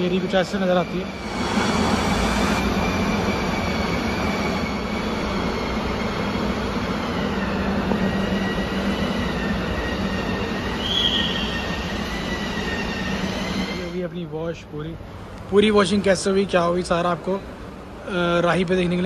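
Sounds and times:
mechanical drone with high whine: 0:00.0 - 0:14.1
short high squeak: 0:00.4 - 0:13.9.

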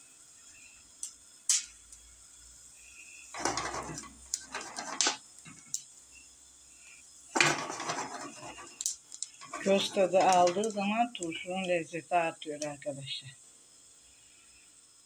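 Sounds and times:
peppers popping in a pan: 0:00.9 - 0:02.1, 0:03.3 - 0:06.0, 0:07.3 - 0:11.8.

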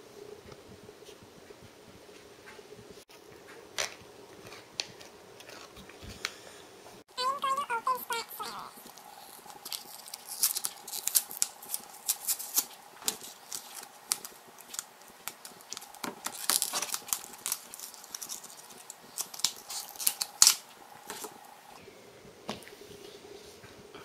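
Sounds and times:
plastic packaging crackling: 0:08.4 - 0:21.3.

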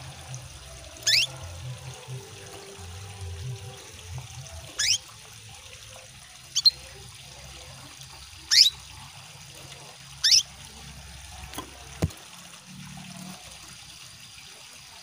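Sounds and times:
running water trickling: 0:00.0 - 0:15.0
canary chirping: 0:01.0 - 0:01.4, 0:04.7 - 0:05.0, 0:06.5 - 0:06.8, 0:08.5 - 0:08.8, 0:10.2 - 0:10.5.

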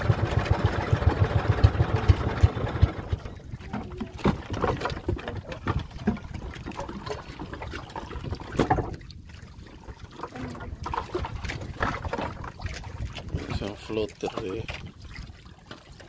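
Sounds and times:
water splashing and trickling: 0:00.0 - 0:16.0.

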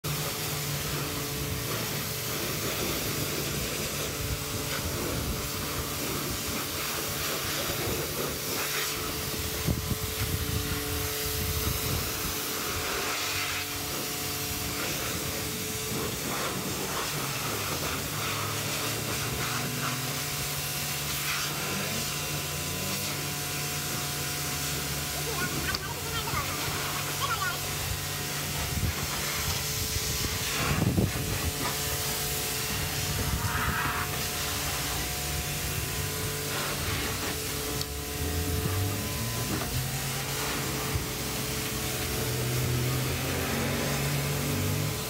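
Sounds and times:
pressure washer spray hissing: 0:00.1 - 0:45.0
low hum: 0:27.7 - 0:45.0.

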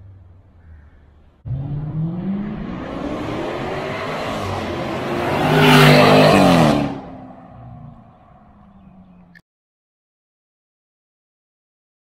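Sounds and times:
car exhaust accelerating: 0:01.4 - 0:09.4.

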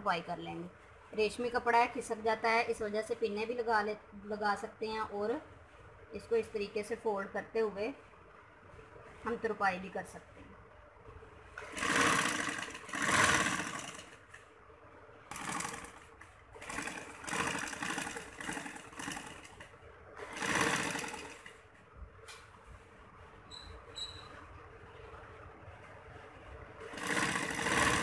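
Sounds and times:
sewing machine running: 0:11.6 - 0:14.4, 0:15.3 - 0:21.7, 0:26.8 - 0:28.0.

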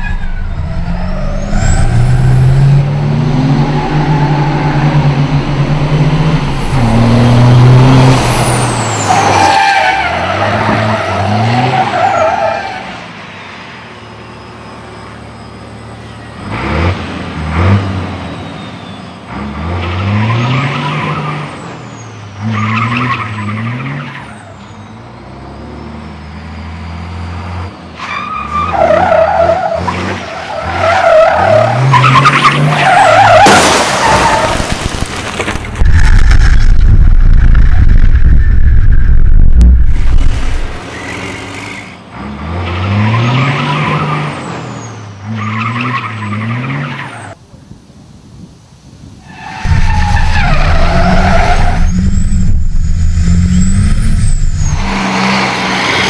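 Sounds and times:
loud low rumble: 0:00.0 - 0:08.3, 0:35.5 - 0:40.8, 0:49.7 - 0:55.0
race truck engine revving: 0:00.0 - 0:12.2, 0:49.6 - 0:56.0
tyres squealing and skidding: 0:00.0 - 0:16.9, 0:17.6 - 0:47.4, 0:49.2 - 0:56.0.

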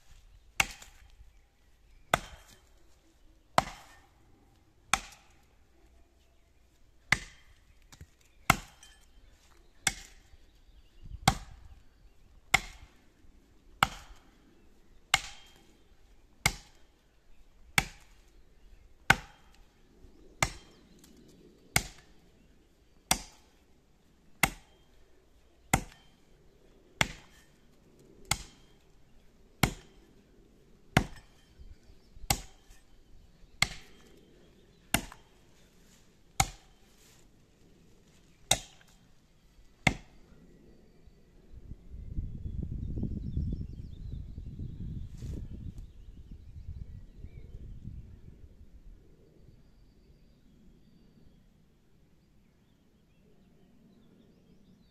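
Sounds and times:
axe chopping into tree trunk: 0:00.6 - 0:01.1, 0:02.1 - 0:02.7, 0:03.6 - 0:04.1, 0:04.9 - 0:05.4, 0:07.1 - 0:09.2, 0:09.8 - 0:10.3, 0:11.2 - 0:11.7, 0:12.5 - 0:13.0, 0:13.8 - 0:14.4, 0:15.1 - 0:15.8, 0:16.4 - 0:16.9, 0:17.8 - 0:18.2, 0:19.1 - 0:19.7, 0:20.4 - 0:20.8, 0:21.8 - 0:22.2, 0:23.1 - 0:23.6, 0:24.4 - 0:24.9, 0:25.7 - 0:26.2, 0:27.0 - 0:27.6, 0:28.3 - 0:28.8, 0:29.6 - 0:30.1, 0:31.0 - 0:31.5, 0:32.2 - 0:32.9, 0:33.6 - 0:34.1, 0:34.9 - 0:35.3, 0:36.4 - 0:36.9, 0:38.5 - 0:39.0, 0:39.8 - 0:40.2.

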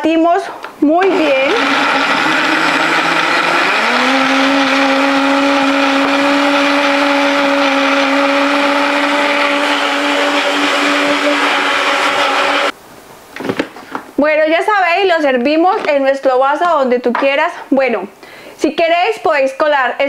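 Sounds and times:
blender running: 0:01.0 - 0:12.8.

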